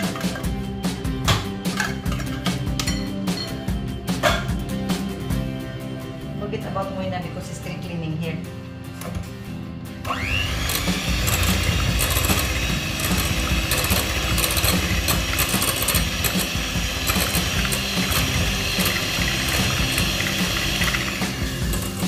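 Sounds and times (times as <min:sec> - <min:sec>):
electric hand mixer whining: 0:10.1 - 0:22.0.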